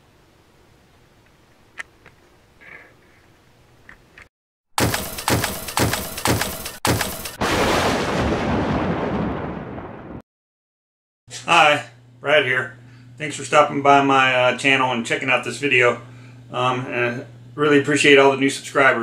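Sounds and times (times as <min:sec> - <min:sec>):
sharp cracks: 0:04.8 - 0:08.7.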